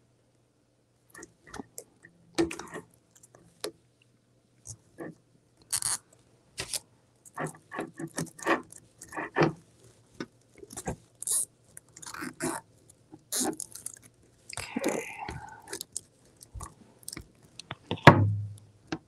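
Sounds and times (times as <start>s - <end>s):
plastic zip tie pulled tight: 5.7s - 6.0s, 11.2s - 12.6s, 13.3s - 14.0s.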